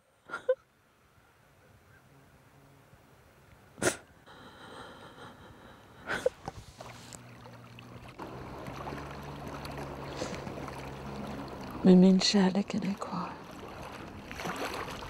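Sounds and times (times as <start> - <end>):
steady low hum: 0.0 - 15.0
water rushing: 6.2 - 15.0.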